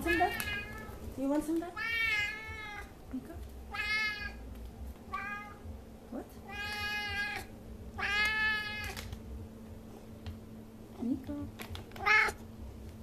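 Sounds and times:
cat meowing: 1.8 - 3.0, 3.7 - 4.4, 5.1 - 5.6, 6.4 - 9.0, 12.0 - 12.4.

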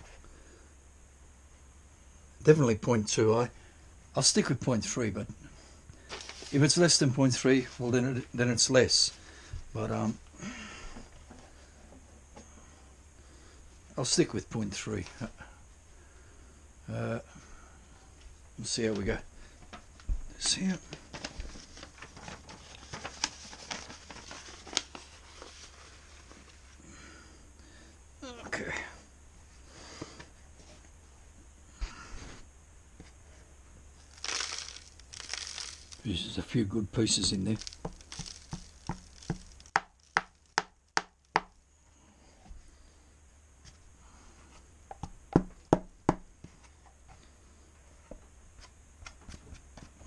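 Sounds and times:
rustling of small objects: 6.0 - 8.1, 20.4 - 26.8, 33.1 - 41.6.

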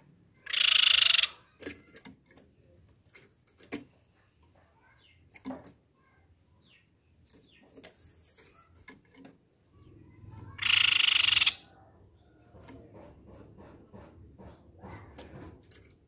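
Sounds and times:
bird rattling trill: 0.5 - 2.1, 7.8 - 9.2, 10.4 - 11.7.

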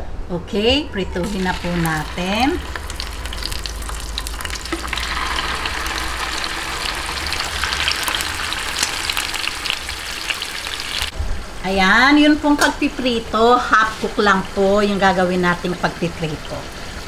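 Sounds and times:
fish sizzling in hot oil: 1.2 - 11.1.

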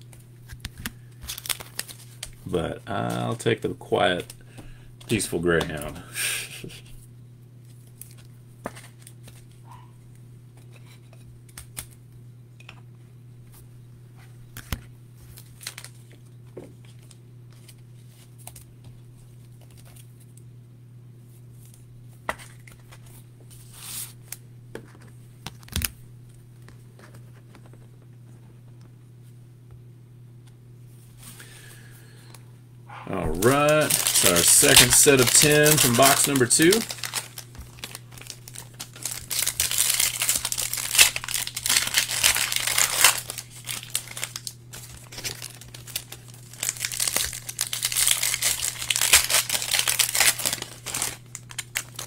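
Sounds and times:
plastic sleeves rustling: 0.0 - 6.0, 33.1 - 52.0
steady low hum: 0.0 - 52.0.

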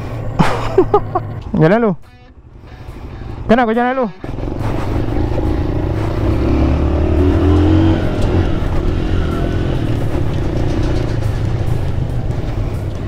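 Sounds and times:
motorcycle engine running: 4.2 - 13.0.

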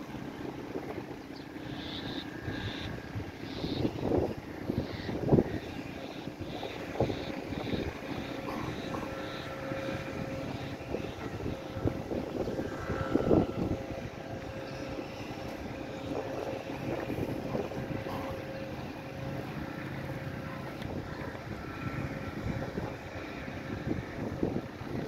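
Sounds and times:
steady motor hum: 0.0 - 25.0
wind rumbling on microphone: 0.0 - 25.0.

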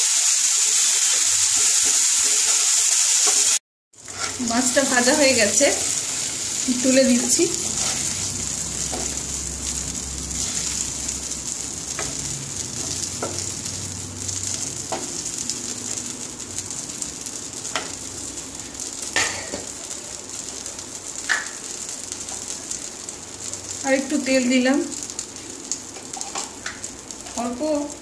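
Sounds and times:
oil sizzling in a wok: 0.0 - 28.0
wooden spatula scraping pan: 4.0 - 4.6, 7.2 - 8.3.

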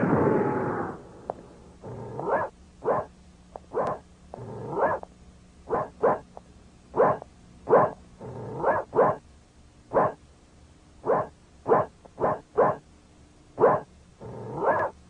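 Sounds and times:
dog barking: 2.2 - 3.1, 3.7 - 4.0, 4.6 - 5.0, 5.7 - 6.3, 7.0 - 9.2, 9.9 - 10.2, 11.0 - 12.8, 13.6 - 15.0.

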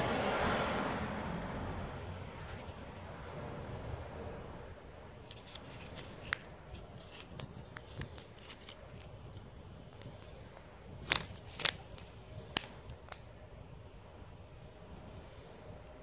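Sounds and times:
faint outdoor background: 0.0 - 16.0
plastic packaging crackling: 5.2 - 9.4, 11.0 - 13.2.

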